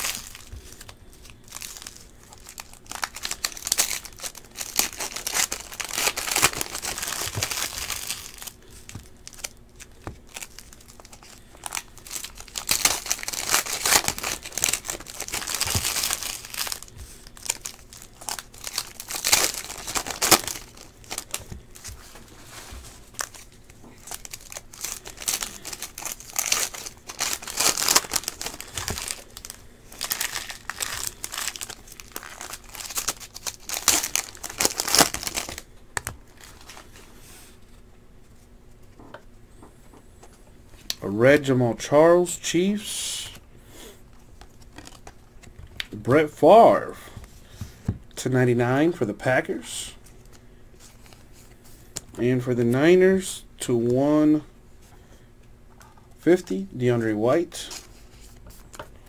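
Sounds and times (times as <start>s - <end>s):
plastic wrappers crinkling: 0.0s - 37.1s, 44.2s - 45.9s.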